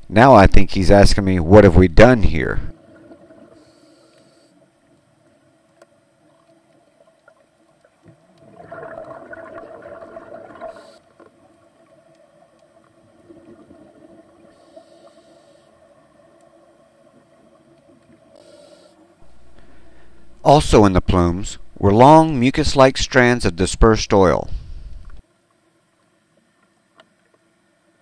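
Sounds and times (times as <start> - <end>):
faint steady hum: 0.0 - 28.0
regulator inhalation hiss: 3.6 - 4.6, 14.5 - 15.8, 18.4 - 20.6
diver exhaling bubbles: 8.4 - 11.1.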